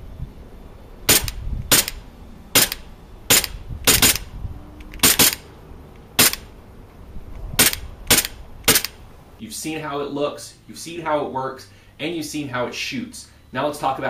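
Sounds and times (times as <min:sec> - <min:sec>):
airsoft pistol shots: 0:01.1 - 0:04.3, 0:05.0 - 0:05.5, 0:06.2 - 0:06.5, 0:07.6 - 0:09.0.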